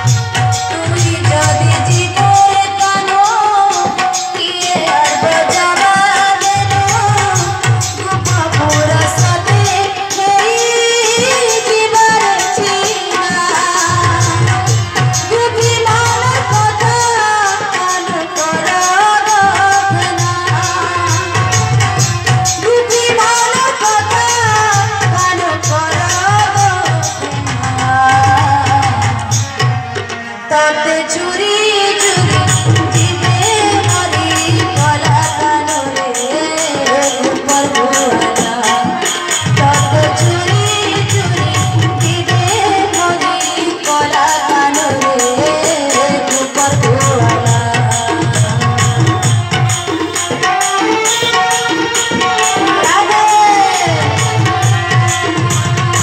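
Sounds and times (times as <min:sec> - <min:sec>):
person singing: 0:30.5 - 0:56.0.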